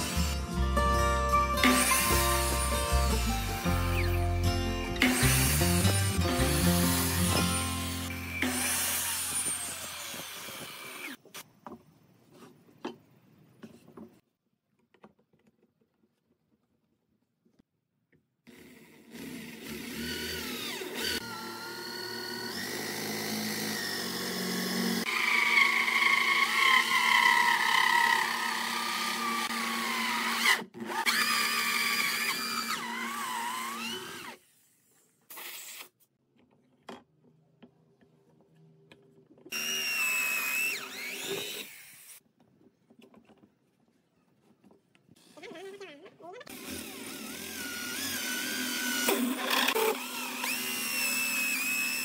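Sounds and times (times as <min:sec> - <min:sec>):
electric drill hole saw cutting wood: 0:00.0 - 0:00.6, 0:01.6 - 0:11.4, 0:18.5 - 0:34.6, 0:35.3 - 0:35.9, 0:39.5 - 0:42.2, 0:46.5 - 0:52.0.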